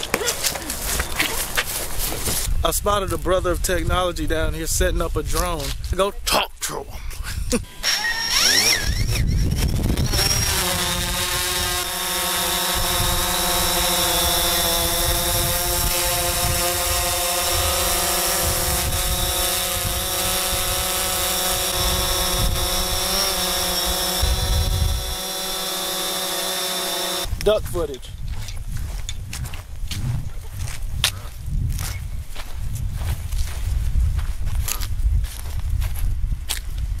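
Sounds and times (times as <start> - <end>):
drone propellers buzzing: 7.6 - 27.3
gusty low rumble: 23.6 - 25.2, 27.3 - 37.0.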